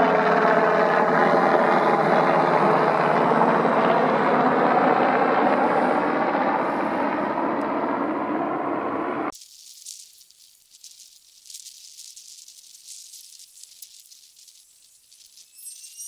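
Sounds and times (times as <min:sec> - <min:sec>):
aircraft engine droning overhead: 0:00.0 - 0:09.3.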